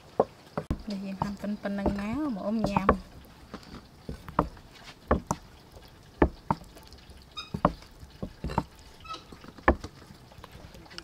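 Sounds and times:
knife knocking on chopping board: 0:00.6 - 0:03.1, 0:04.3 - 0:05.4, 0:07.5 - 0:08.7.

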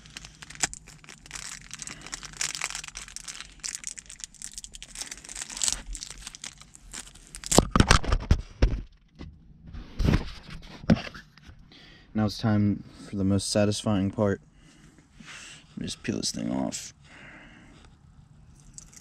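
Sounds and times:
plastic film crinkling: 0:00.0 - 0:08.2.

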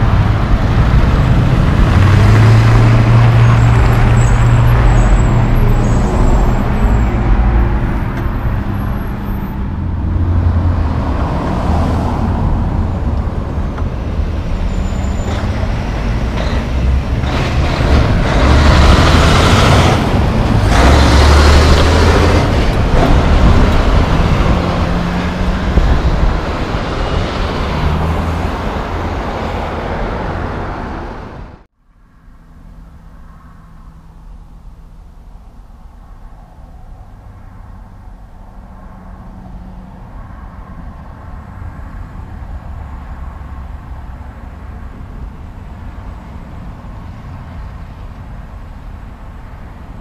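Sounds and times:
trucks driving past: 0:00.0 - 0:50.0.

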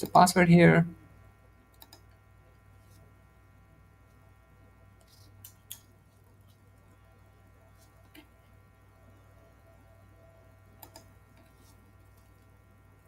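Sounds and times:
low electrical hum: 0:00.0 - 0:13.0
faint clicks: 0:01.7 - 0:02.1.

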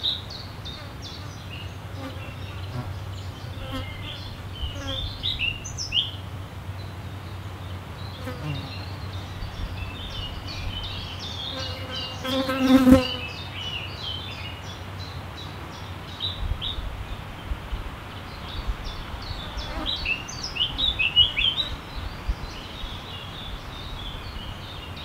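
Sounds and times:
birds chirping: 0:00.0 - 0:25.0
insect buzzing: 0:00.8 - 0:05.8, 0:11.3 - 0:13.4.

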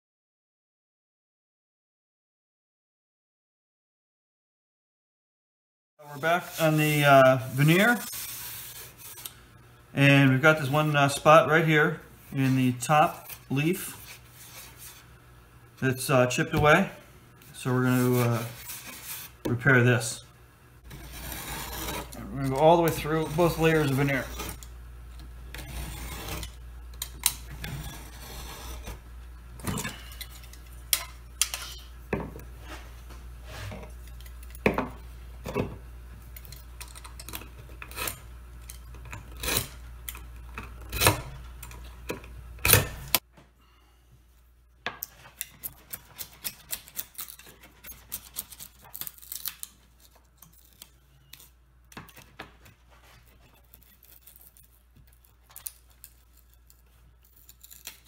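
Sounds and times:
steady low hum: 0:06.0 - 0:48.9
utility knife scraping along metal: 0:17.8 - 0:19.4, 0:20.8 - 0:24.7, 0:25.5 - 0:29.0, 0:36.4 - 0:40.2, 0:45.4 - 0:51.5
chisel ticking and scraping: 0:20.9 - 0:29.0.

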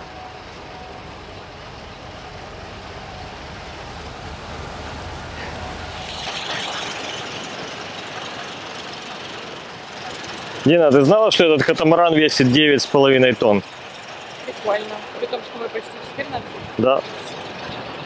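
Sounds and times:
crane diesel engine droning: 0:00.0 - 0:18.0
hissing noise: 0:01.6 - 0:15.0.

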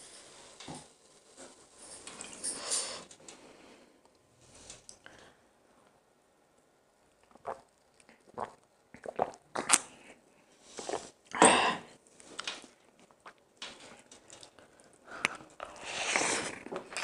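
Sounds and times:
sipping from a glass: 0:15.6 - 0:17.0.

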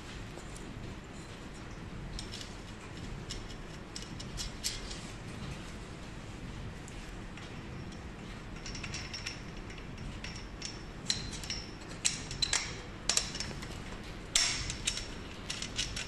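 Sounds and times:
metal tubes clinking: 0:08.6 - 0:13.6.

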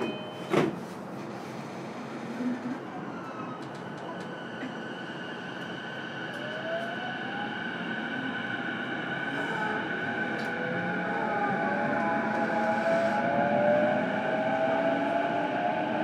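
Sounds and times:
electric train inverter whine: 0:03.4 - 0:16.0.

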